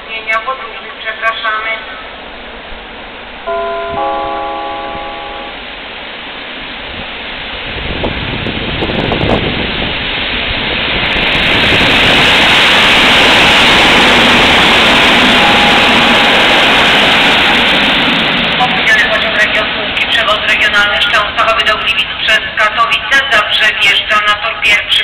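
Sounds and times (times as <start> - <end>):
electric train passing: 1.9 - 25.0
station announcement chime: 3.5 - 5.7, 18.6 - 25.0.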